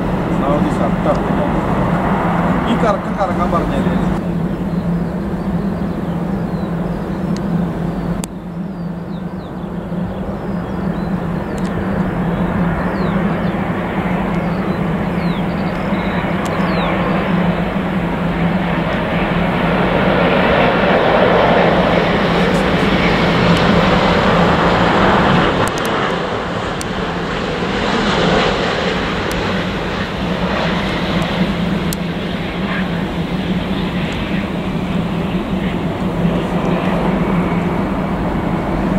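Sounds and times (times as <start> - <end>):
jet engines roaring: 0.0 - 38.9.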